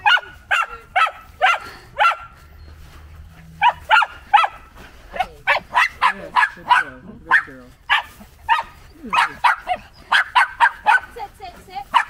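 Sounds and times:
puppy barking: 0.0s - 2.4s, 3.6s - 11.2s.

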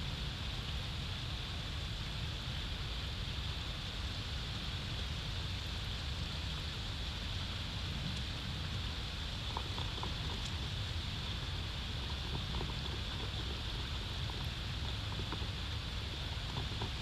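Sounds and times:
wind buffeting microphone: 7.5s - 17.0s.

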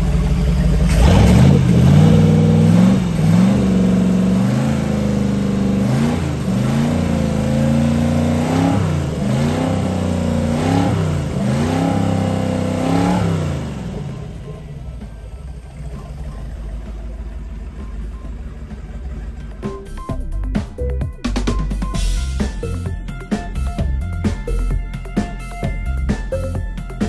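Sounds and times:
boat engine revving: 0.0s - 20.0s.

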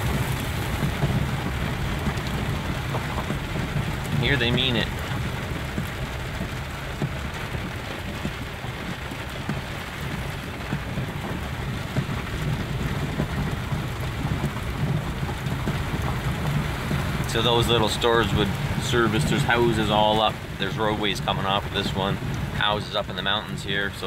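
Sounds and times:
heavy rain on car roof: 0.0s - 24.0s
moving vehicle rumble: 0.0s - 24.0s.

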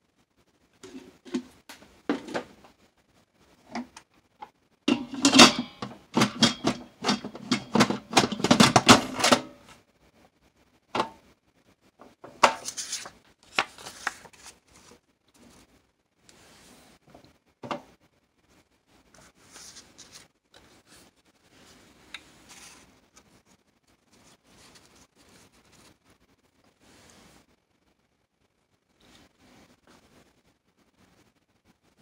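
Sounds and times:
dishes and utensils clattering: 4.9s - 9.6s
index cards rustling and tapping: 12.1s - 15.0s.

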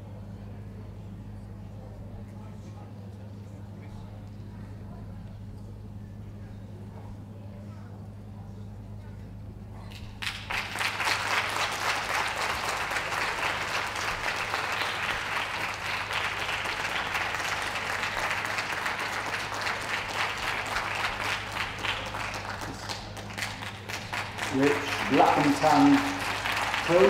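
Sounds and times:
audience applauding: 10.0s - 27.0s.

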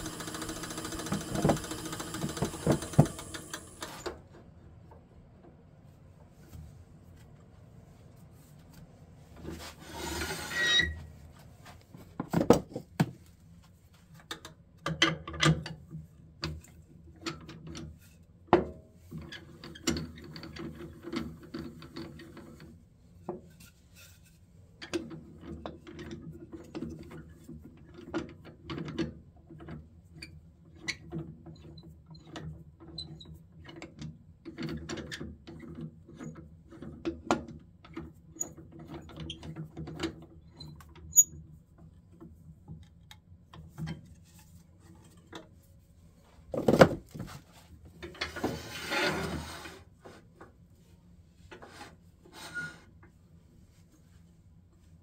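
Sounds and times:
wood knocking against metal chuck: 0.0s - 3.4s.

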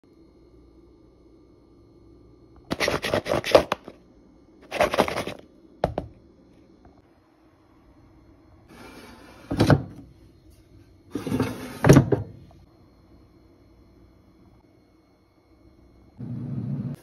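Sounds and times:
drawer sliding scrape: 8.7s - 10.0s, 11.1s - 12.2s.

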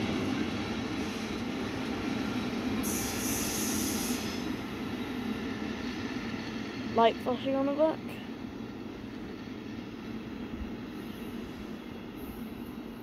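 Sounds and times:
freight train wheels rumbling: 0.0s - 13.0s
high hiss: 2.7s - 4.6s.

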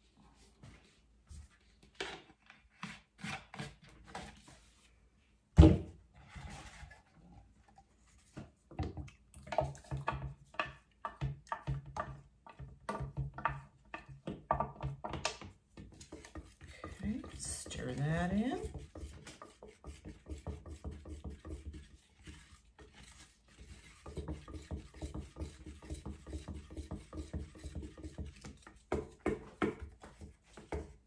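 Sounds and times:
stir stick knocking plastic pitcher: 8.3s - 31.0s.

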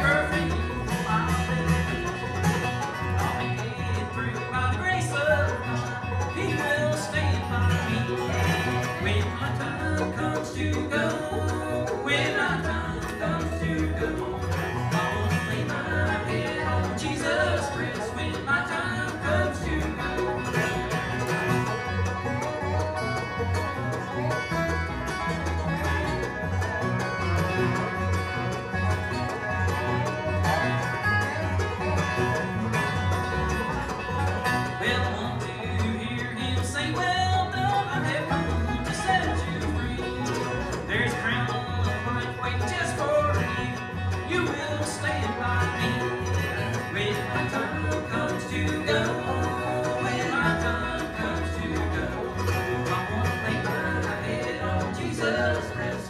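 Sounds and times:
bluegrass band playing: 0.0s - 56.0s.

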